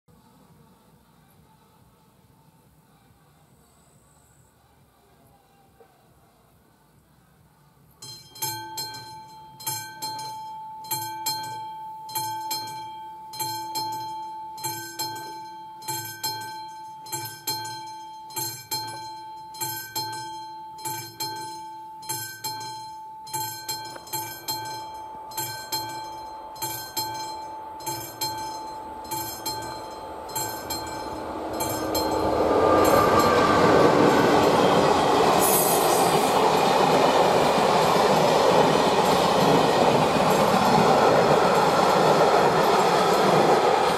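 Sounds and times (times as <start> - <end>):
level crossing bell ringing: 8.0 - 37.6
passenger train passing: 23.4 - 43.9.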